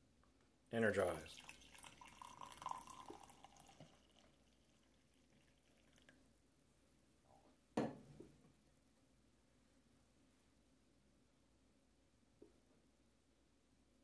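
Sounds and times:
coffee pouring into a mug: 0:00.9 - 0:06.3.

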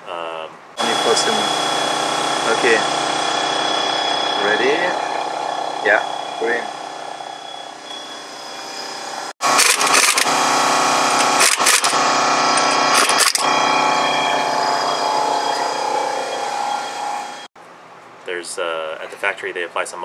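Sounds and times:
pneumatic impact wrench hammering: 0:09.4 - 0:14.8.

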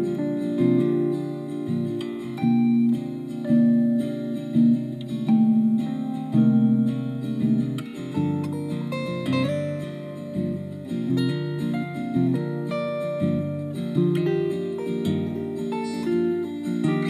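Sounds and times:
plucked acoustic guitar music: 0:00.0 - 0:17.0.

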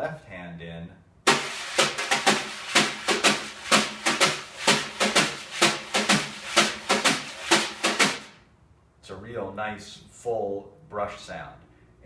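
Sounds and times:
wire brushes on snare drum: 0:01.3 - 0:08.4.

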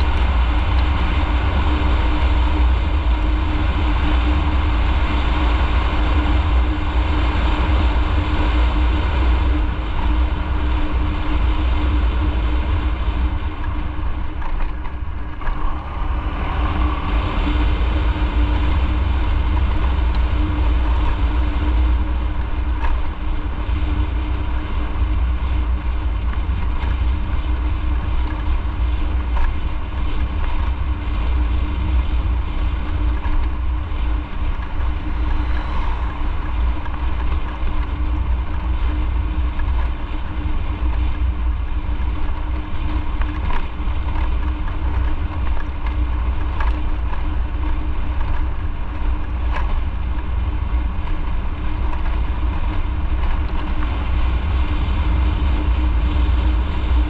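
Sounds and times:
motorcycle engine humming: 0:00.0 - 0:57.0
wind rumble on microphone: 0:00.0 - 0:57.0.

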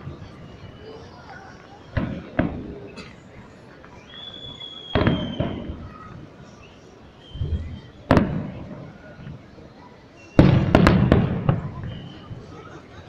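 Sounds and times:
firework sharp bang: 0:01.9 - 0:03.0, 0:04.8 - 0:05.9, 0:07.4 - 0:08.8, 0:10.4 - 0:12.2
firework dull thud: 0:04.9 - 0:05.8, 0:10.4 - 0:12.0
cluster of cracking bangs: 0:05.0 - 0:05.8, 0:08.1 - 0:08.7, 0:10.4 - 0:11.9.

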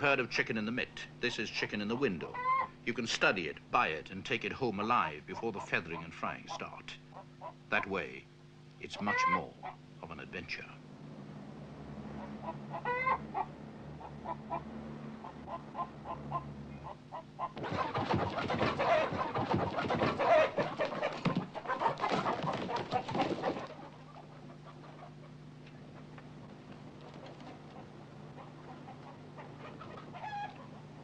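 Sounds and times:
chickens clucking: 0:01.7 - 0:03.4, 0:05.3 - 0:07.6, 0:08.8 - 0:09.8, 0:12.2 - 0:31.0.

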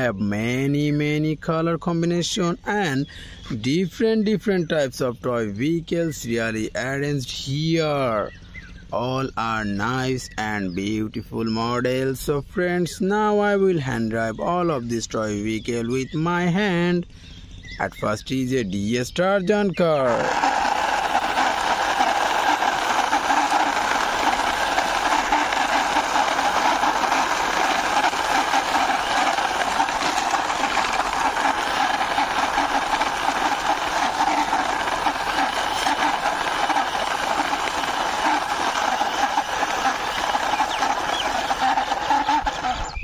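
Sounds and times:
toy car wheels scraping stone: 0:19.9 - 0:43.0.

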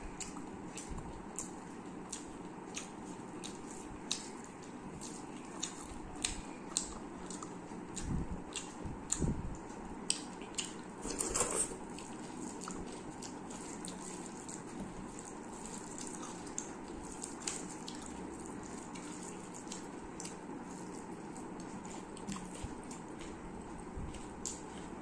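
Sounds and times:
fingers squishing wet food: 0:11.8 - 0:25.0.

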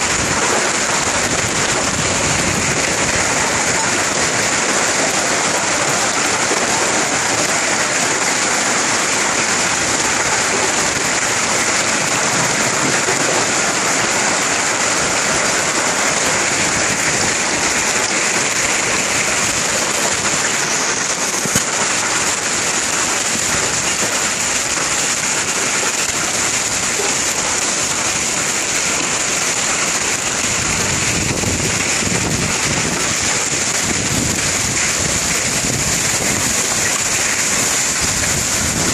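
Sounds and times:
wind buffeting microphone: 0:00.0 - 0:07.6, 0:30.1 - 0:38.9
hail and rain pelting pavement: 0:00.0 - 0:38.9.

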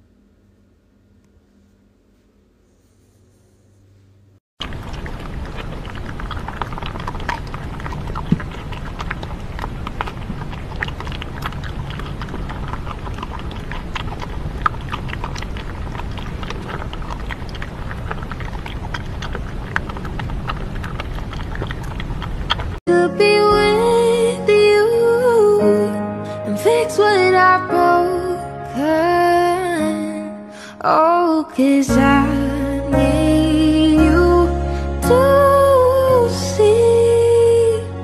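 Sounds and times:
animals crunching dry food: 0:04.6 - 0:22.8.

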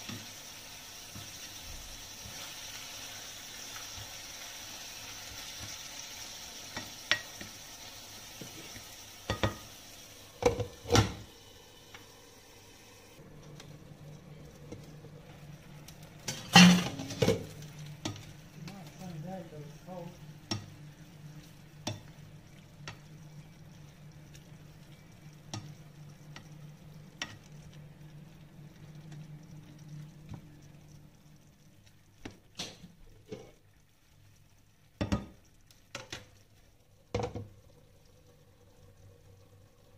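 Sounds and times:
meat sizzling in a frying pan: 0:00.0 - 0:39.9
knocks against the pan: 0:35.0 - 0:35.4, 0:37.1 - 0:37.5.

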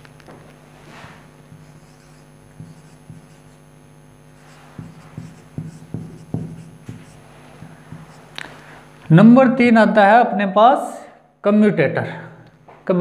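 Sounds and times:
steady low hum: 0:00.0 - 0:10.4
marker writing on whiteboard: 0:01.5 - 0:03.6, 0:04.4 - 0:08.4.

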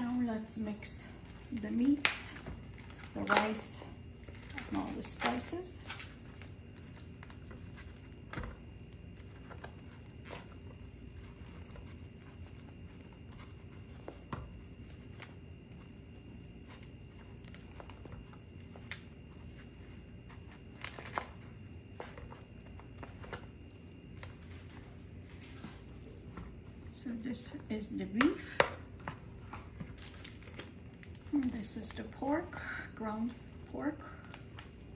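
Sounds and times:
faint steady hum: 0:00.0 - 0:34.9.

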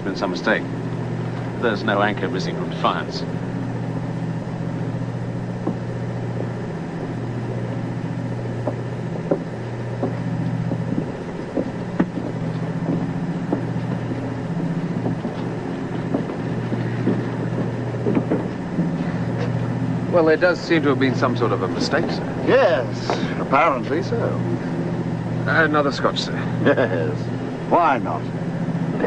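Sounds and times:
low machinery hum: 0:00.0 - 0:29.0
light clicks and knocks: 0:08.6 - 0:19.7.

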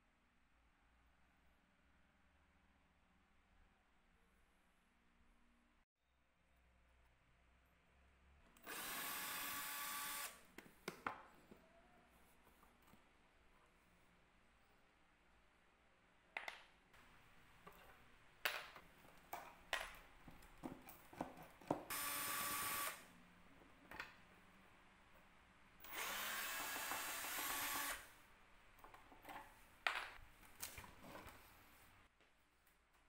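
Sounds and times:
cordless drill driving screw: 0:08.6 - 0:10.4, 0:21.9 - 0:23.0, 0:25.8 - 0:28.1.

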